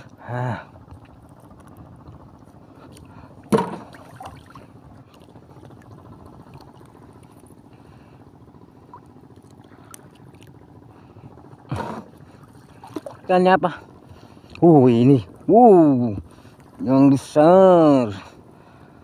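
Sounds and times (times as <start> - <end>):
seawater sloshing and gurgling: 0.0 - 14.6.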